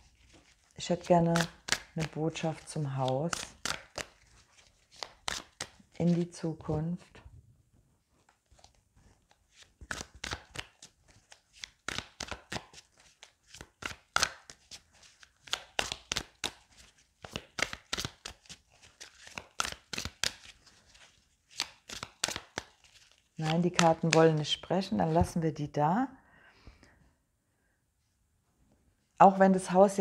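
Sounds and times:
cards shuffled by hand: 0.0 - 6.7, 8.2 - 25.4.

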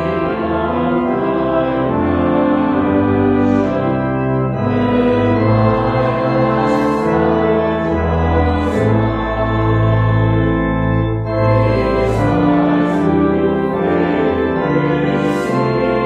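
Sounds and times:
church organ playing a hymn: 0.0 - 16.0
voices singing: 4.7 - 10.6, 11.4 - 16.0.

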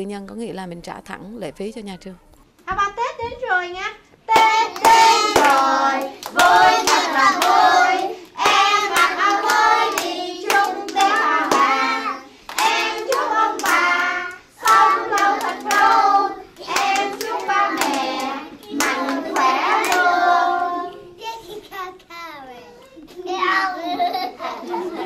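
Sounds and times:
hands clapping: 4.3 - 11.9, 12.5 - 20.1
children singing together: 4.3 - 21.2.

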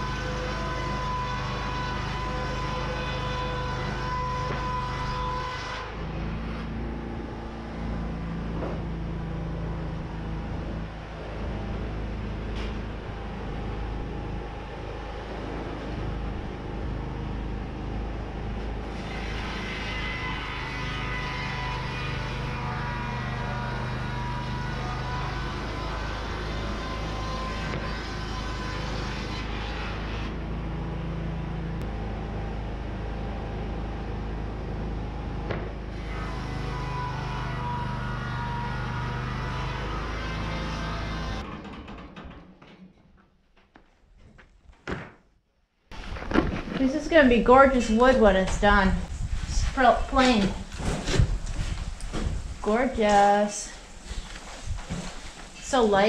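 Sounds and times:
band sawmill running: 0.0 - 42.9.

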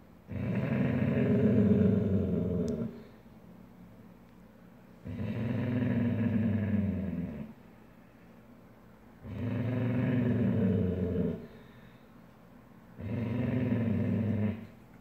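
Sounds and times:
dog growling: 0.3 - 3.0, 5.0 - 7.6, 9.2 - 11.7, 13.0 - 14.8.

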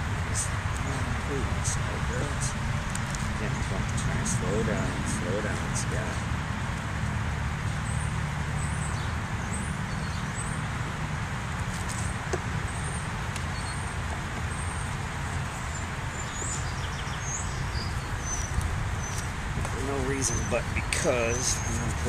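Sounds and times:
wind rumble on microphone: 0.0 - 22.0
bird chirping: 7.4 - 10.7, 11.8 - 22.0.

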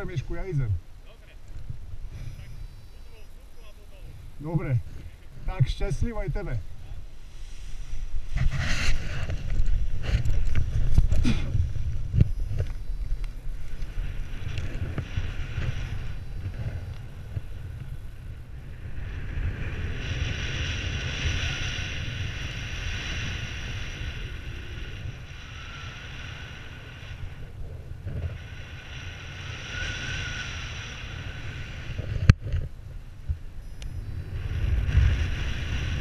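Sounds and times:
wind rumble on microphone: 0.0 - 36.0
airflow hiss: 5.5 - 18.0, 28.3 - 32.0.

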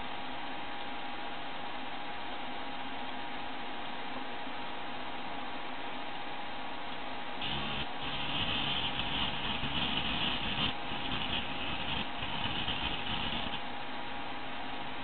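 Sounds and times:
hard disk scraping hiss: 7.4 - 13.7.

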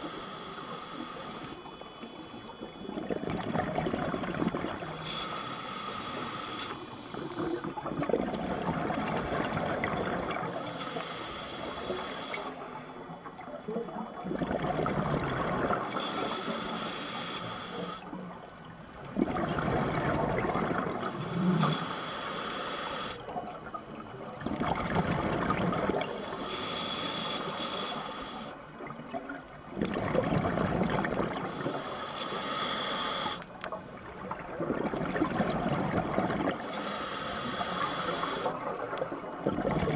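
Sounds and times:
regulator hissing inhale: 0.0 - 1.7, 4.7 - 6.8, 10.6 - 12.6, 15.8 - 18.1, 21.0 - 23.3, 26.1 - 28.6, 31.3 - 33.6, 36.5 - 38.7
exhaled bubbles gurgling: 2.2 - 5.2, 6.1 - 11.0, 11.6 - 16.7, 18.0 - 21.8, 23.3 - 26.8, 28.7 - 32.0, 33.8 - 39.9.

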